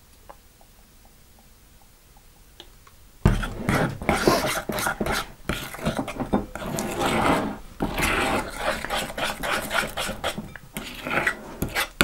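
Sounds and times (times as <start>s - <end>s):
metal spoon scraping wet slime: 3.3s - 12.0s.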